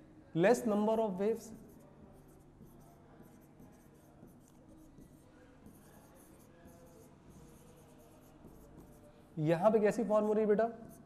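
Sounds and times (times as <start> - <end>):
marker writing on a board: 1.0 - 11.0.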